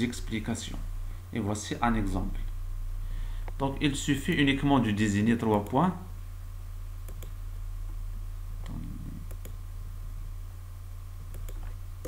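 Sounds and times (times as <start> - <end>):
low electrical hum: 0.0 - 12.0
computer mouse clicking: 7.1 - 7.4, 8.6 - 9.6, 11.3 - 11.8.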